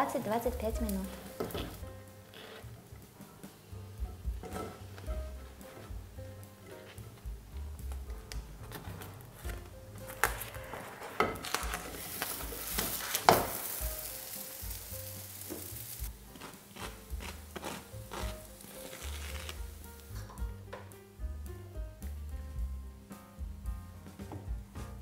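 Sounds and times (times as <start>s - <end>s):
oil sizzling in a frying pan: 0.0s - 6.2s, 11.2s - 20.4s
soft background music: 0.0s - 25.0s.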